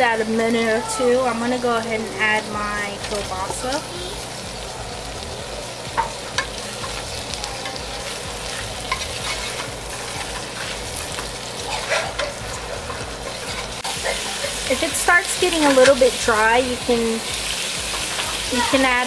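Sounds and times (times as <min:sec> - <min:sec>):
meat sizzling in a pot: 0:00.0 - 0:19.0
wooden spoon scraping a pot: 0:08.5 - 0:11.1, 0:11.7 - 0:14.7.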